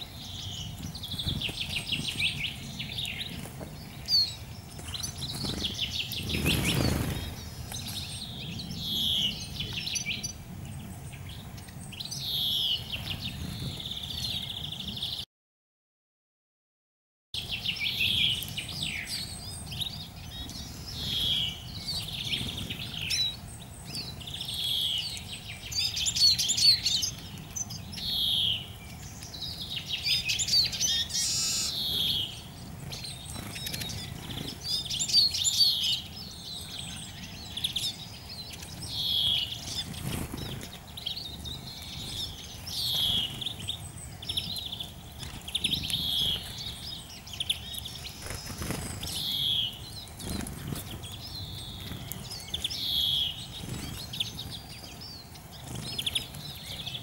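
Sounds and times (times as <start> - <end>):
birds twittering: 0.0 - 15.2, 17.4 - 57.0
songbirds calling: 0.0 - 15.2, 17.4 - 57.0.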